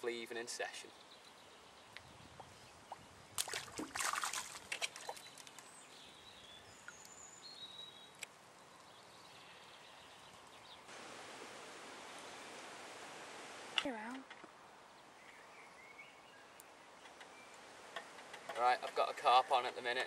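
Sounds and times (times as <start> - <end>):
faint bird chirps: 15.0 - 17.7.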